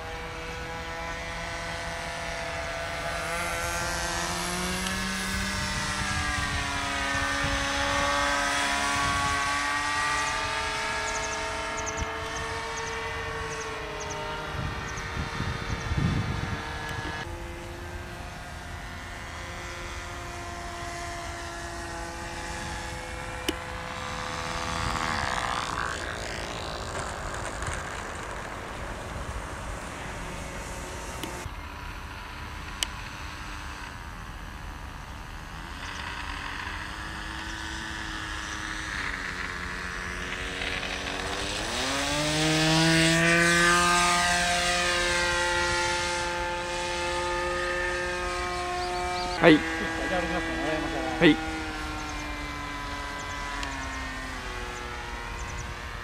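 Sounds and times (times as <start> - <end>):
model airplane engine: 0.0 - 56.0
wind on microphone: 2.3 - 17.5.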